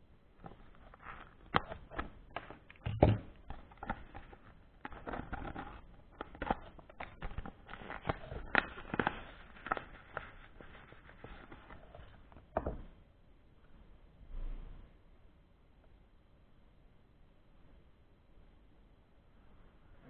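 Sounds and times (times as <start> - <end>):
plastic pouch crinkling: 0.4 - 12.6.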